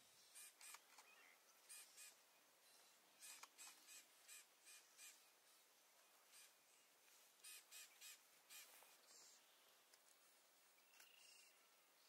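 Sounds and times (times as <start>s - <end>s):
faint bird calling: 0.2s - 9.7s.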